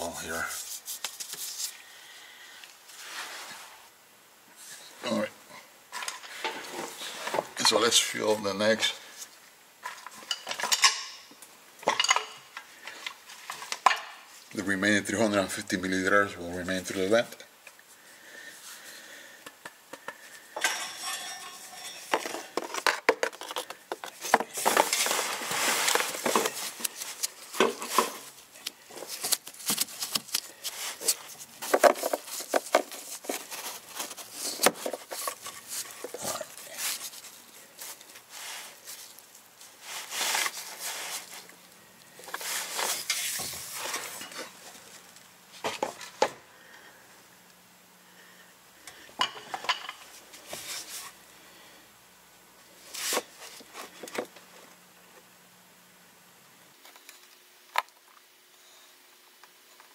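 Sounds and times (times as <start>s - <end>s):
tools and containers clinking: 9.8s - 12.6s, 20.6s - 28.3s.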